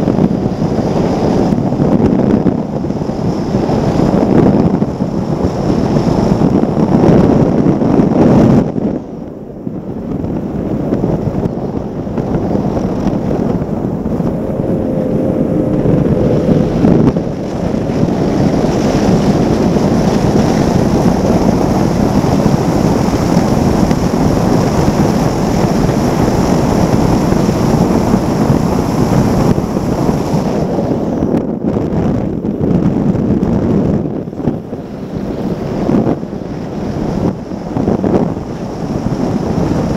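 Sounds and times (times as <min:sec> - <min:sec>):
outboard engine: 0:00.0 - 0:39.9
wind buffeting microphone: 0:00.0 - 0:39.9
rushing water spray: 0:12.2 - 0:31.2.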